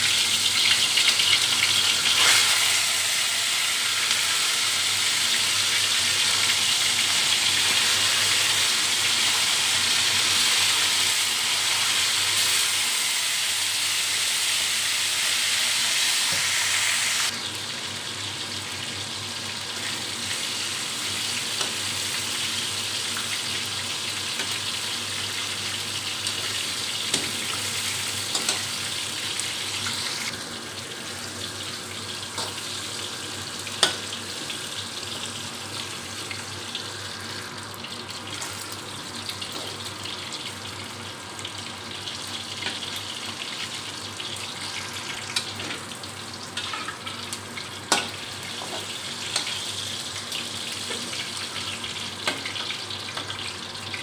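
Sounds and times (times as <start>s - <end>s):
meat sizzling in hot oil: 0.0s - 54.0s.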